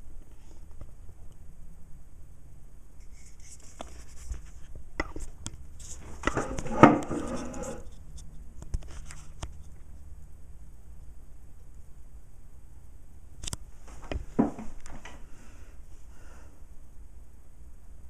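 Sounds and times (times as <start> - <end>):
portafilter clicks and scraping: 5.8 - 7.9.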